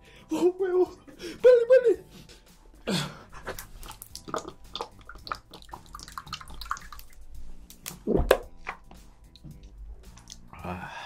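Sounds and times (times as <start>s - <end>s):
person gasping: 2.1s - 3.9s
person gulping a drink: 3.4s - 7.2s, 10.1s - 10.5s.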